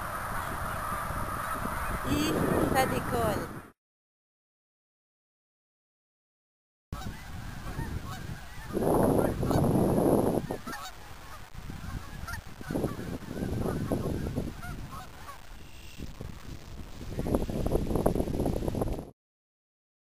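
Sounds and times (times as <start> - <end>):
geese honking: 0.0 - 3.5, 7.0 - 9.8, 10.4 - 15.9.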